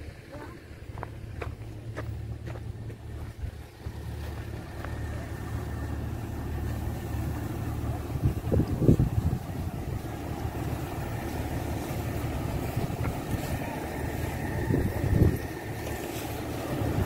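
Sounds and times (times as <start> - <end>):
low engine rumble: 0.0 - 17.0.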